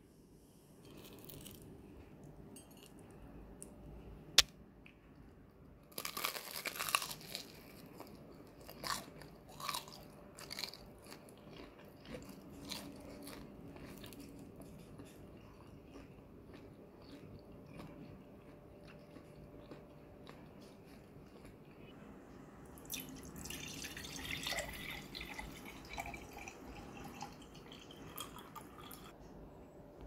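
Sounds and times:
crunchy fried food biting: 5.9s - 14.2s
crisp chewing crunches: 5.9s - 21.9s.

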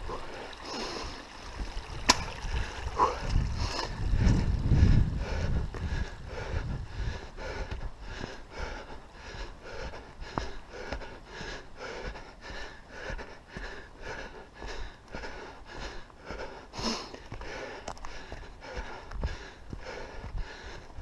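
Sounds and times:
person breathing hard: 0.0s - 1.3s, 2.5s - 21.0s.

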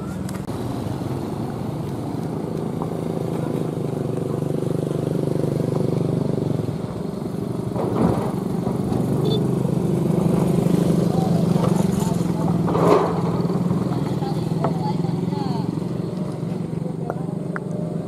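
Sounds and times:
vehicle engine running: 0.0s - 18.0s.

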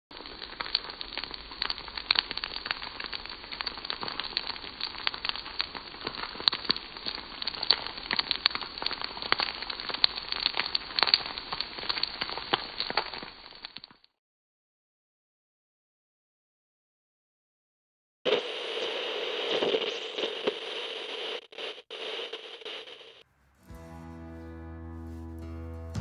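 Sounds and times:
rice sizzling in a wok: 0.1s - 14.0s, 18.3s - 23.2s.

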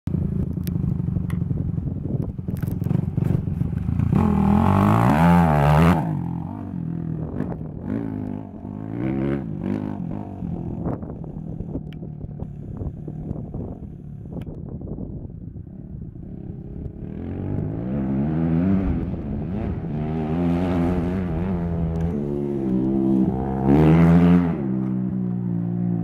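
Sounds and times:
dirt bike engine revving: 2.9s - 11.7s, 16.2s - 26.0s.

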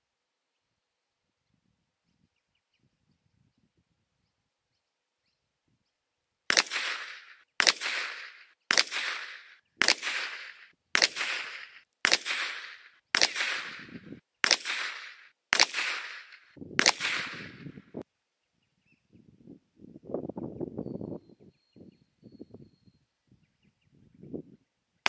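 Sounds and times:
pistol shots with echo: 6.5s - 17.7s.

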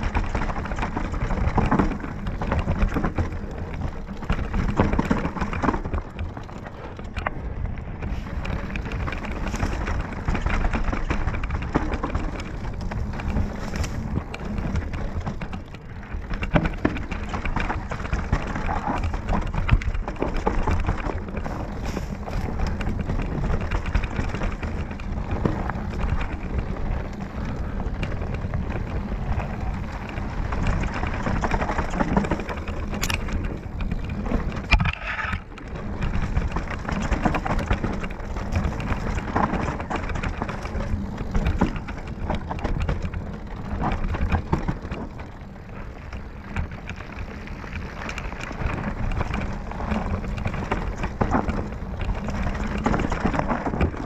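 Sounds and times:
bike frame and chain clattering: 0.0s - 54.0s
tyres crunching over dirt: 0.0s - 54.0s.

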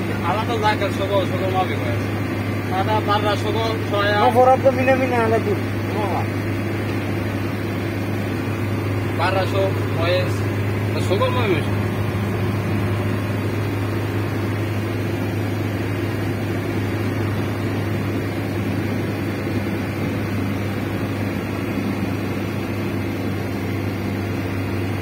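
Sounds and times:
vehicle engine drone and road noise: 0.0s - 25.0s.

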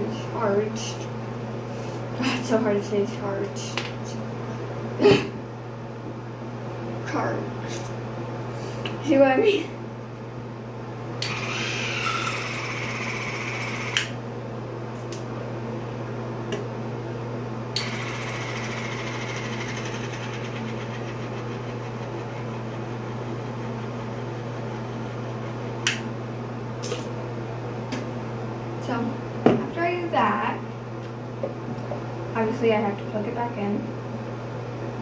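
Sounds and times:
water flosser pump buzzing: 11.2s - 14.2s, 17.7s - 24.1s.

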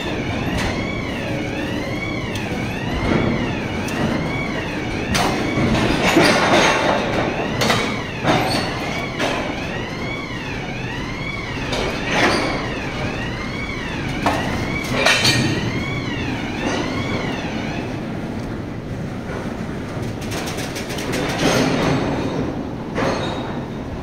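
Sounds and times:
steel wagons clanking: 2.8s - 10.1s, 20.0s - 24.0s.

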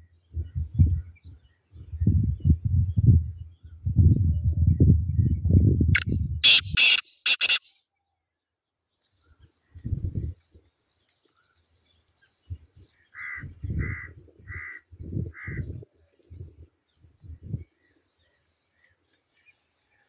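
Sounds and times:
francolin calling: 6.0s - 7.7s.

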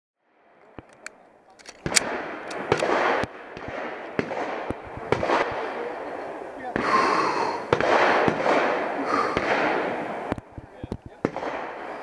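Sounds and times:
handgun shots: 0.9s - 5.6s.

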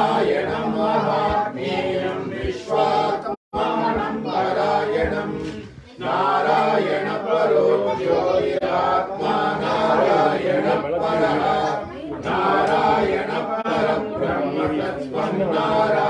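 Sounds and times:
group chanting a hymn: 0.0s - 16.0s.

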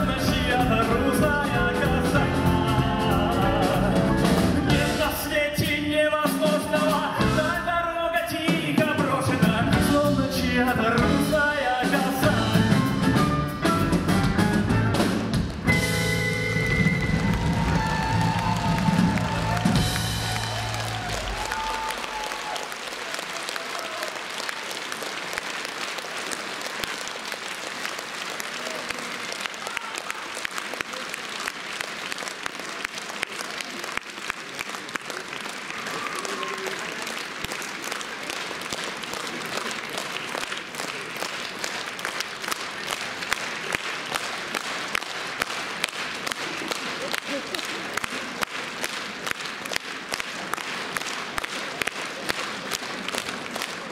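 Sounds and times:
audience applauding: 15.3s - 53.9s.

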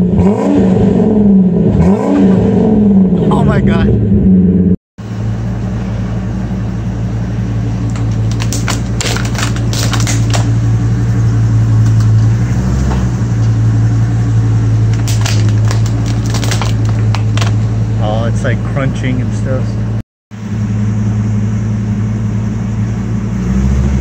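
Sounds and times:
suv engine idling: 3.0s - 24.0s
crunching under tyres: 7.7s - 17.9s.

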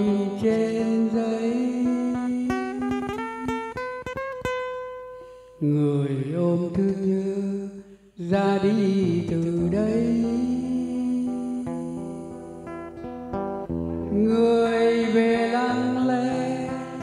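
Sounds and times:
man singing a slow ballad: 0.0s - 3.2s, 5.6s - 12.9s, 14.1s - 17.0s
acoustic guitar plucking: 0.0s - 17.0s.

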